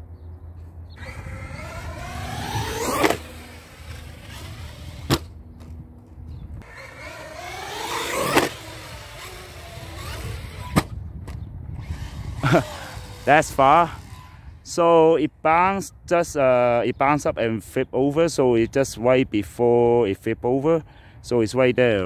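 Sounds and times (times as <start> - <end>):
electric motor whine: 1.0 - 5.8, 6.6 - 11.0, 11.8 - 14.6.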